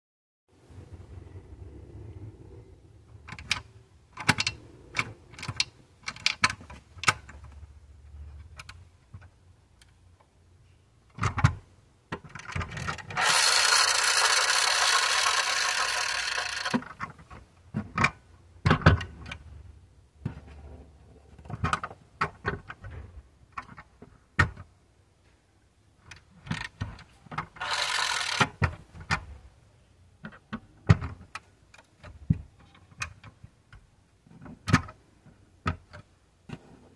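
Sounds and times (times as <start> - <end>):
toy car wheels clicking and rubbing: 12.3 - 17.1, 27.4 - 28.8
friction motor gears whirring: 13.1 - 16.9, 27.6 - 28.5.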